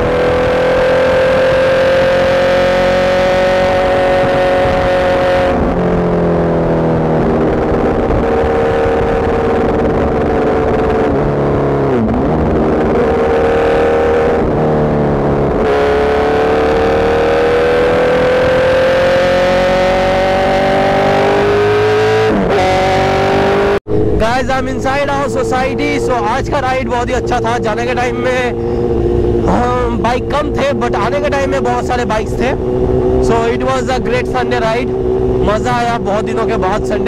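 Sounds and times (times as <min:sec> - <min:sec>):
wind rush over microphone: 0:00.0 - 0:22.9, 0:23.9 - 0:37.0
motorcycle engine revving: 0:00.0 - 0:37.0.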